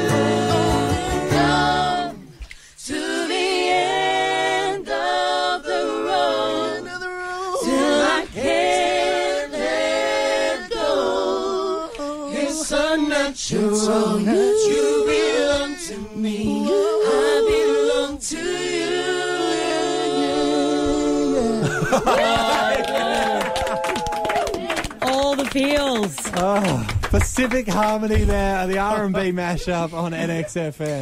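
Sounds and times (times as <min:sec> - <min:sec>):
instrumental backing: 0:00.0 - 0:02.4
group singing a cappella harmony: 0:00.0 - 0:24.6.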